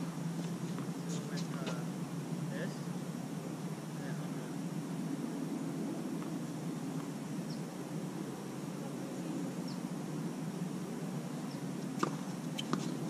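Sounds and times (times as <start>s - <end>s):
outdoor background noise: 0.0s - 13.0s
tennis ball hit and bouncing: 12.0s - 13.0s.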